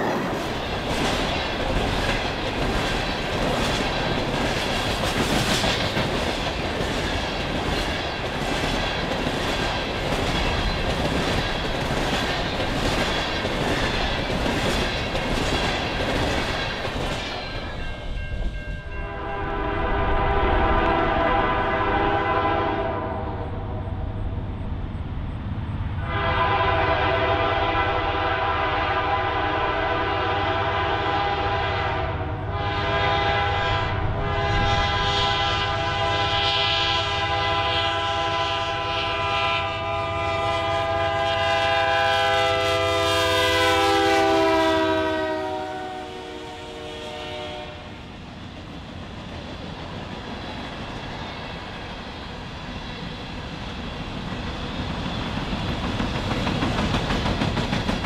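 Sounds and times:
train wheels rolling: 0.0 - 21.3, 47.3 - 58.0
train air horn blasts: 18.8 - 23.5, 26.0 - 48.1.

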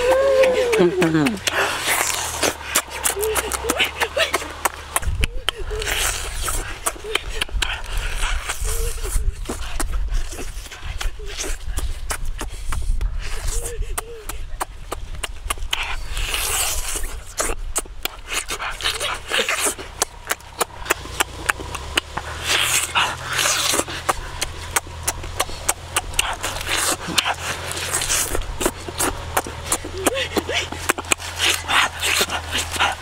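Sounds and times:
low steady hum: 0.0 - 33.0
person chewing and smacking: 0.0 - 33.0
person breathing: 1.4 - 3.1.

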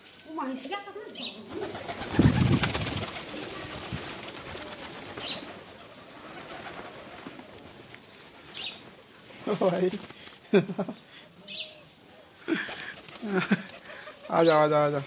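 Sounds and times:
pigeon wings flapping: 1.4 - 10.5, 12.5 - 14.3.

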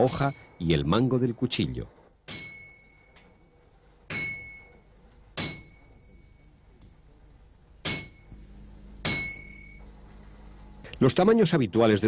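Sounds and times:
hammer clanging on anvil: 0.0 - 0.9, 2.3 - 3.5, 4.1 - 6.4, 7.8 - 9.8.

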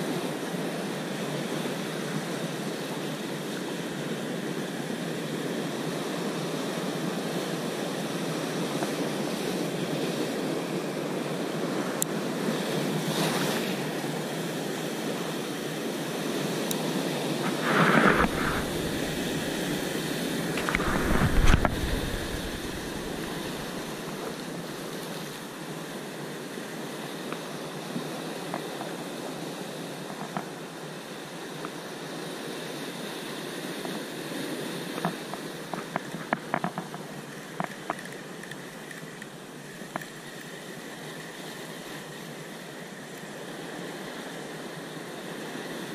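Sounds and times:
sea surf breaking against rocks: 5.7 - 30.6.

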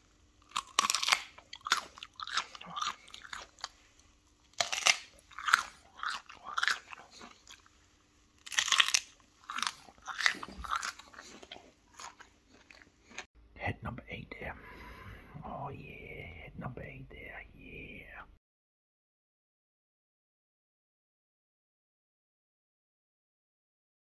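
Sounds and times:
crunchy bites and chewing: 0.0 - 13.3.

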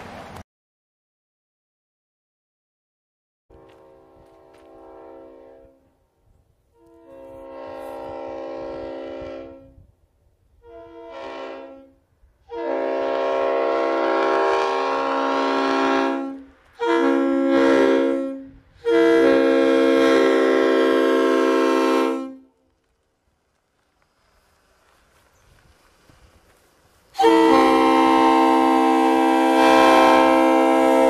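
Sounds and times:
train air horn blasts: 3.5 - 6.0, 6.7 - 9.9, 10.6 - 22.6, 27.2 - 31.0.

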